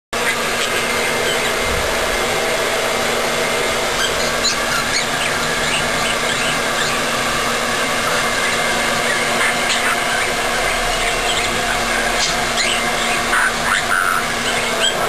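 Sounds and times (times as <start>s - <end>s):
hair dryer blowing: 0.2s - 15.0s
budgerigar chirping: 8.4s - 15.0s.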